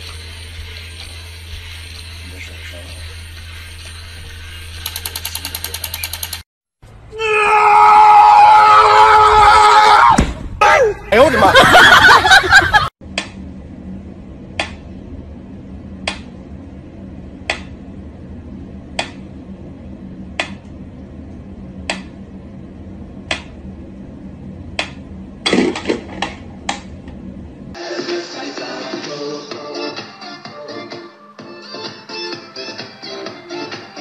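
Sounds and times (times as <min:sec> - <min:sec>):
quick clicks: 0:04.7 - 0:06.5.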